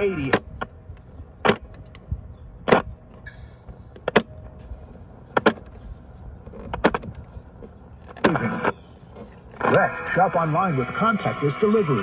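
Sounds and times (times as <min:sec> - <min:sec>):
radio push-buttons clicking: 0:08.1 - 0:08.8.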